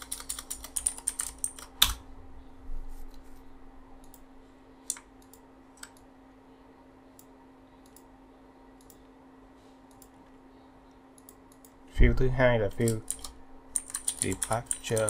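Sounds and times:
faint steady hum: 0.0s - 15.0s
computer mouse clicking: 8.8s - 9.0s, 12.8s - 15.0s.

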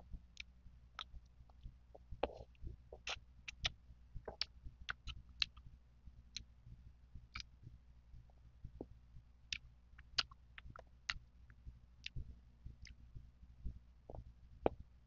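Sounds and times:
mouth clicks: 2.2s - 5.6s, 9.5s - 11.2s.

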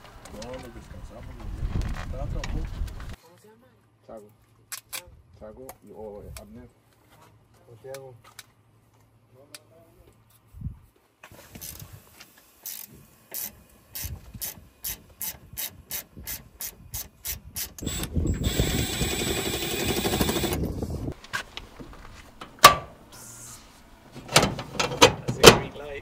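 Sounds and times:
sharp clunk of switch: 22.4s - 23.0s.

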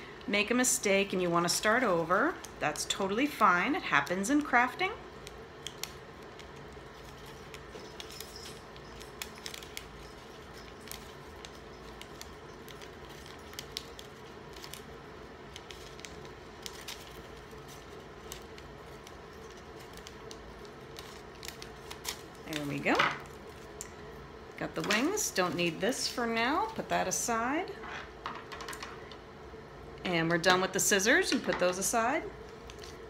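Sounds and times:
scissors snipping paper: 3.9s - 14.9s.

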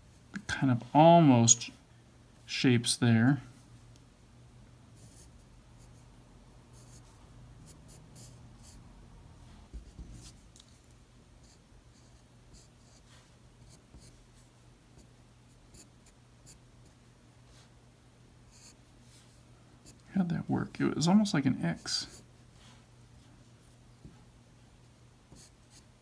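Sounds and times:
steady low hum: 0.0s - 26.0s
pencil scratching on paper: 24.9s - 26.0s.

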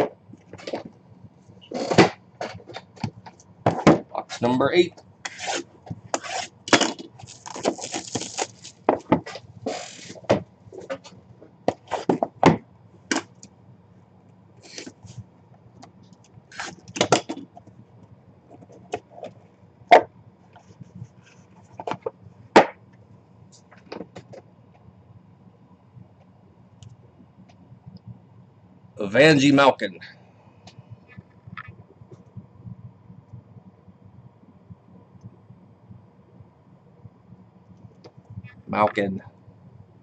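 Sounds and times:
taps and scrapes: 5.2s - 6.6s
cardboard rustling: 6.2s - 11.1s.

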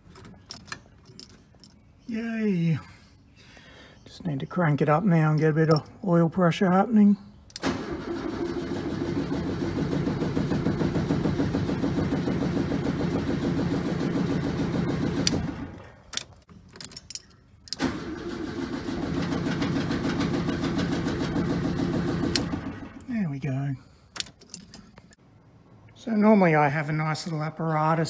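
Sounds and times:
starter motor cranking engine: 7.6s - 16.0s, 17.7s - 23.1s.

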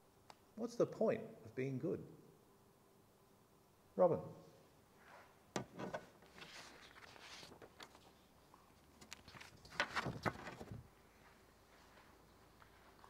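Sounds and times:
paper rustling and crackling: 6.2s - 10.9s.

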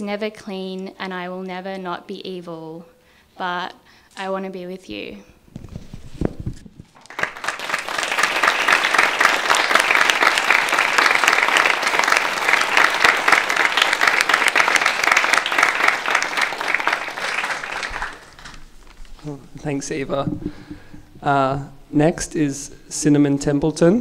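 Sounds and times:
audience applauding: 7.0s - 18.8s.

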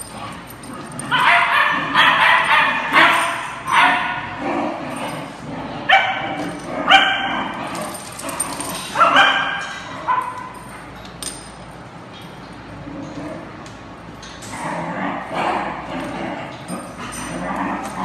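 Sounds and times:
dogs barking and yipping: 0.0s - 11.0s.

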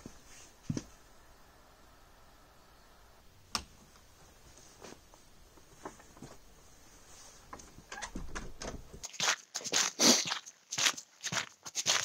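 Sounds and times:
wooden door swinging shut: 7.9s - 9.0s.

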